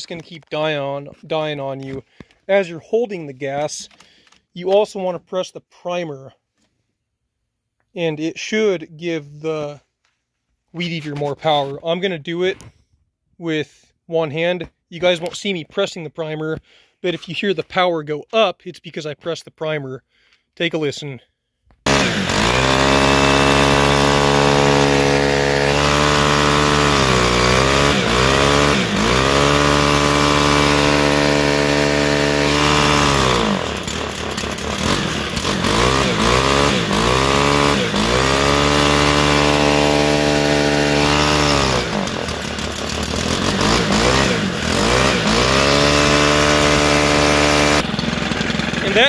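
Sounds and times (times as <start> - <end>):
string trimmer engine revving: 21.8 - 49.0.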